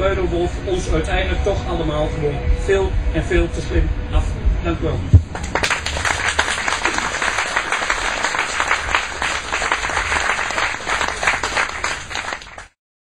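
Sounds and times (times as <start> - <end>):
audience applauding: 5.3 - 12.8.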